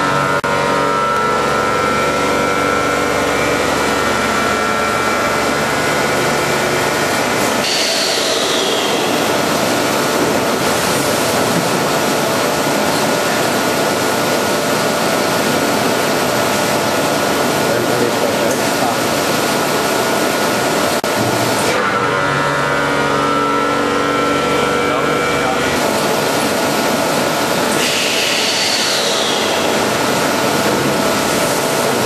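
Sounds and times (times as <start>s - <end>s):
packaging machine running: 0.0s - 21.9s, 22.9s - 32.0s.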